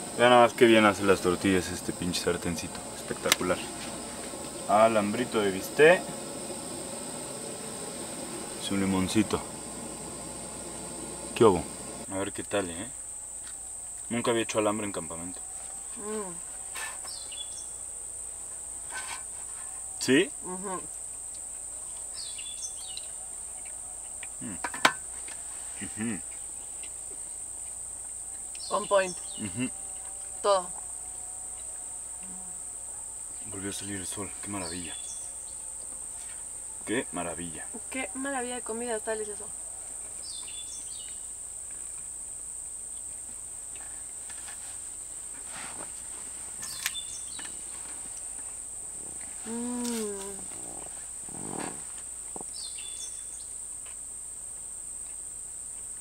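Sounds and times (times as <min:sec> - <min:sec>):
insects chirring: 0:00.0 - 0:56.0
bird chirps: 0:17.0 - 0:17.8, 0:22.1 - 0:23.7, 0:34.6 - 0:35.6, 0:40.2 - 0:41.3, 0:46.6 - 0:47.8, 0:52.5 - 0:53.5
murmured voice: 0:29.4 - 0:29.8, 0:49.4 - 0:51.6.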